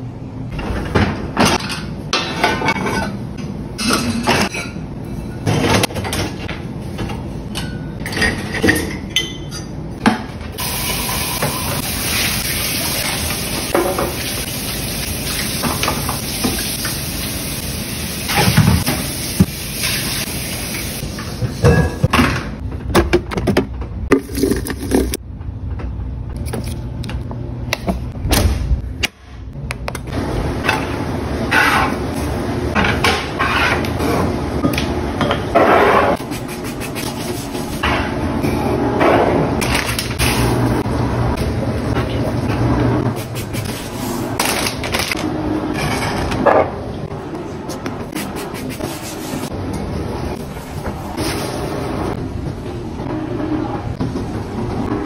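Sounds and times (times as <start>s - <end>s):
pots and dishes clattering: 0.6s - 3.2s, 7.5s - 10.3s, 21.2s - 22.6s.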